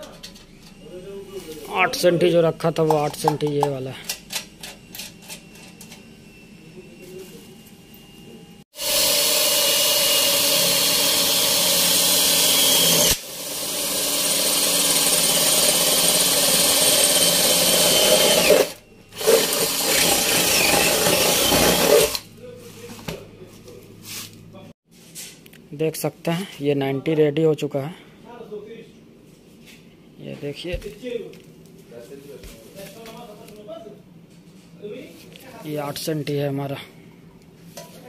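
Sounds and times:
cordless drill boring through steel: 8.7s - 22.2s.

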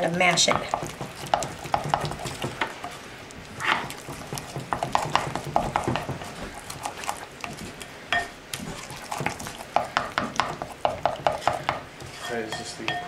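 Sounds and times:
spoon stirring thick pesto: 0.0s - 13.0s
spoon knocking ceramic bowl: 12.5s - 13.0s.

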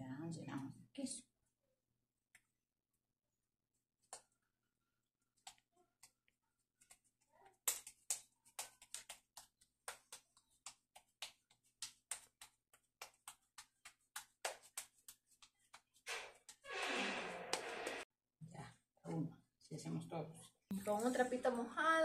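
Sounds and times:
hands patting dough: 6.8s - 16.6s.

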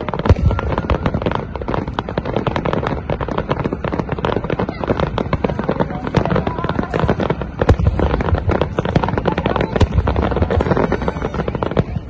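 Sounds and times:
deep fireworks booms: 0.0s - 12.0s
fireworks bangs and crackles: 0.0s - 12.0s.

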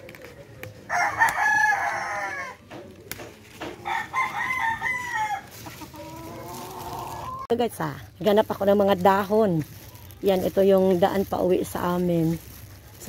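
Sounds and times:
rooster crowing: 0.9s - 2.6s, 3.8s - 7.4s.

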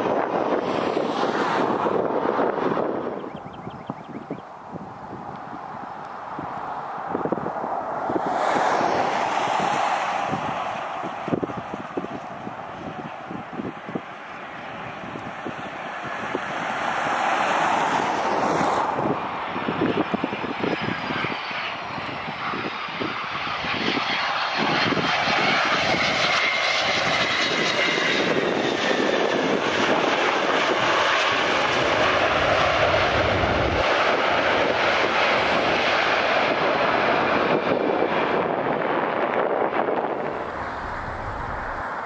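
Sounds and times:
jet reverse thrust rush: 0.0s - 3.1s, 4.8s - 20.1s, 39.9s - 42.0s
jet engines whining: 0.0s - 39.0s, 39.6s - 42.0s.

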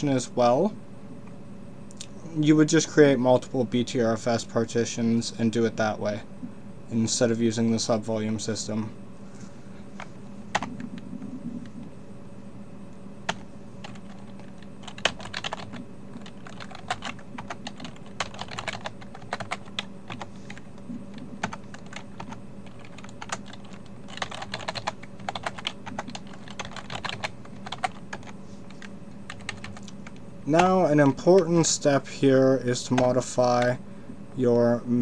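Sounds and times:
faint steady hum: 0.0s - 35.0s
typing on a keyboard: 13.3s - 20.6s, 21.4s - 28.3s, 29.3s - 29.9s.

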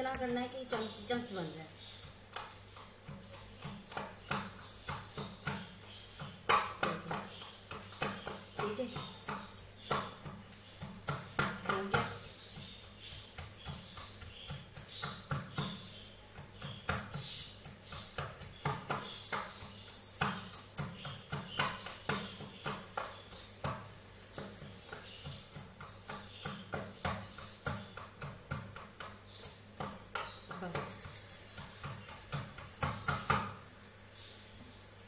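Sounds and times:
wooden pestle pounding in bowl: 0.0s - 33.7s.

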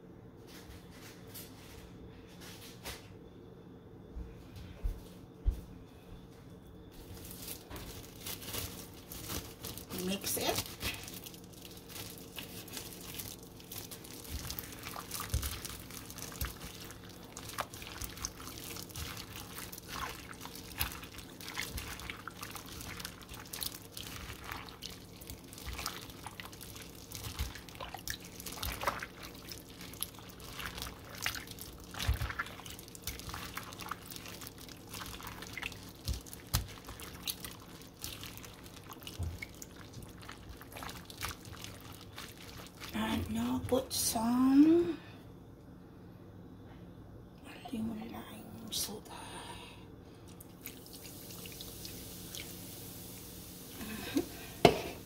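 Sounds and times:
wet squishing and sloshing: 6.9s - 44.8s, 50.1s - 55.0s.

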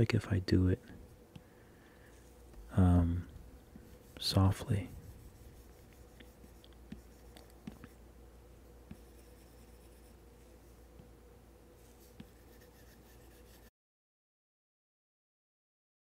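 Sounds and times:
room hum: 0.0s - 13.7s
stylus tapping on tablet screen: 6.0s - 7.9s, 8.9s - 9.2s, 12.2s - 12.5s.

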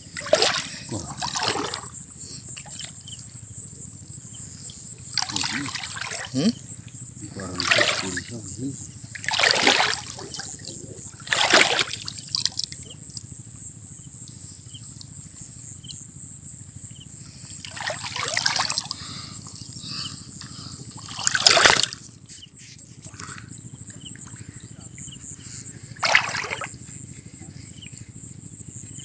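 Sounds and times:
water splashing: 0.0s - 1.9s, 5.0s - 6.6s, 7.2s - 13.0s, 17.6s - 19.1s, 21.0s - 22.0s, 26.0s - 26.8s.

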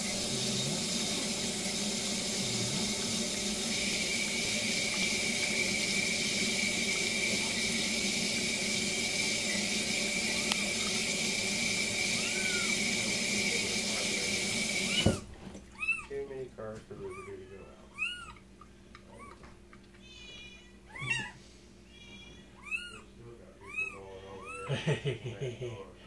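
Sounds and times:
faucet running into metal sink: 0.0s - 15.2s
thin steady whistle: 2.4s - 13.0s
kitten mewing: 12.2s - 12.8s, 14.9s - 16.1s, 17.0s - 18.4s, 19.1s - 24.7s.

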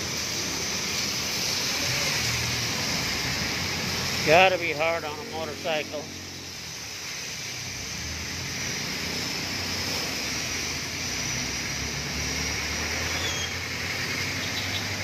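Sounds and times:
tyres hissing on wet road: 0.0s - 15.0s
vehicle engines running low: 0.0s - 15.0s.

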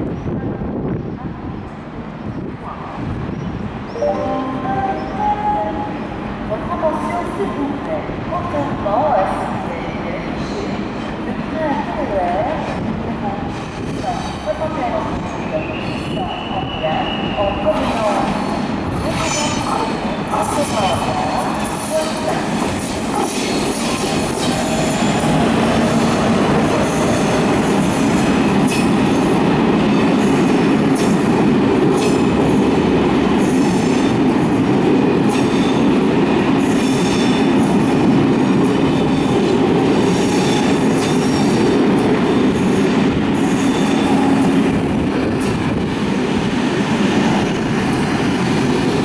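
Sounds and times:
train wheels rumbling on rail: 4.6s - 49.0s.

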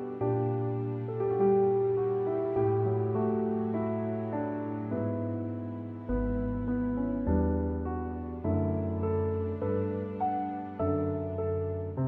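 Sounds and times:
slow keyboard music: 0.0s - 12.0s.

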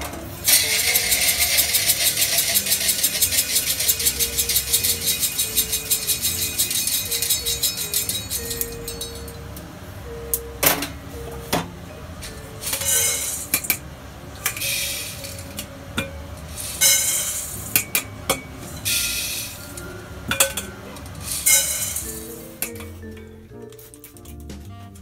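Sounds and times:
coffee beans rattling in metal bowl: 0.4s - 9.1s, 12.6s - 13.7s, 14.5s - 15.4s, 16.5s - 18.0s, 18.7s - 19.8s, 21.2s - 22.7s
sharp metallic clinks: 2.5s - 9.4s.

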